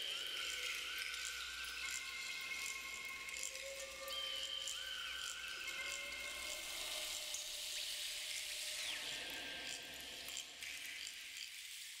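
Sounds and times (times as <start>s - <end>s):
thin whistled calls: 0.0s - 9.3s.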